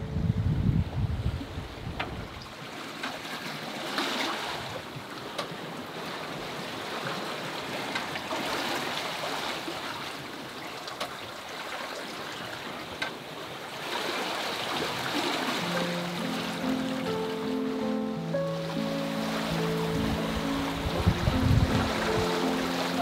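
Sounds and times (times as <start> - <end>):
wind: 0.0 - 23.0
water splashing along hull: 1.1 - 23.0
light clicks from boat: 1.9 - 4.2, 4.8 - 5.8, 7.8 - 8.4, 10.3 - 11.4, 12.0 - 13.4.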